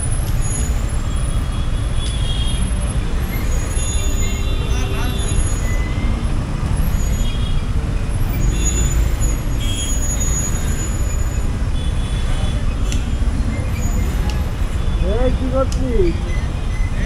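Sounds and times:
road noise: 0.0 - 17.0.

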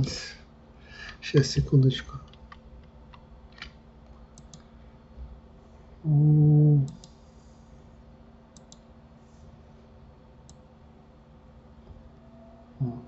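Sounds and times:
man humming: 6.0 - 7.0, 12.8 - 13.0.

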